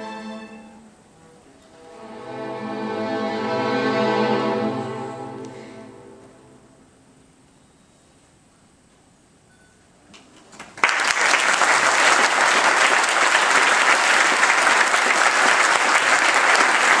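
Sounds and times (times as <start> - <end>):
audience clapping: 10.5 - 17.0.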